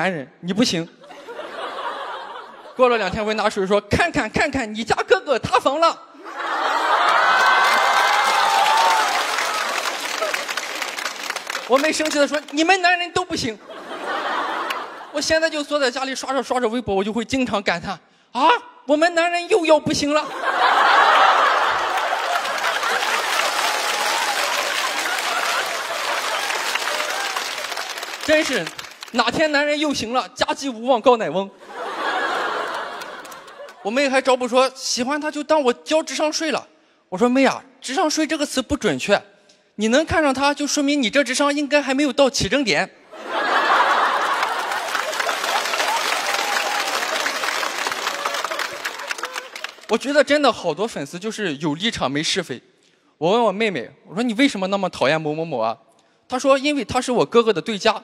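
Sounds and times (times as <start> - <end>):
studio audience applauding: 6.4 - 12.8, 20.6 - 29.5, 32.0 - 33.8, 43.3 - 50.2.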